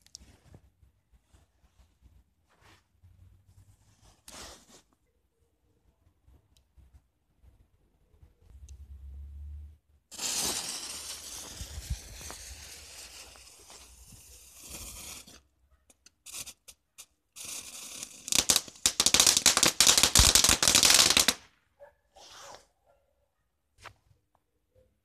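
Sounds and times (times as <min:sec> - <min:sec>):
firework fuse hissing: 0:10.1 - 0:15.4, 0:16.2 - 0:21.5
rapid crackle of small bangs: 0:18.3 - 0:21.5.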